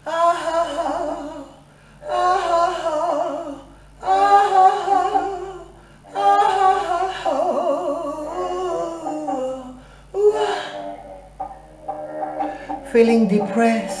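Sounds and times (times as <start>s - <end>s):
woman singing wordless jazz vocal: 0.0s - 11.2s.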